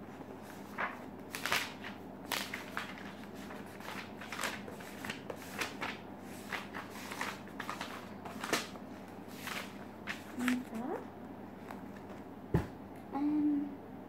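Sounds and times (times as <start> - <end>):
notebook pages turning: 0.4 - 10.8.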